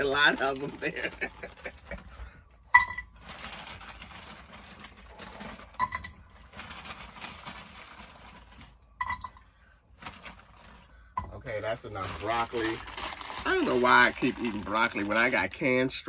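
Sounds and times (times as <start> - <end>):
plastic bag rustling: 0.0 - 16.0
frozen pieces pattering into pot: 3.0 - 9.4, 11.4 - 15.6.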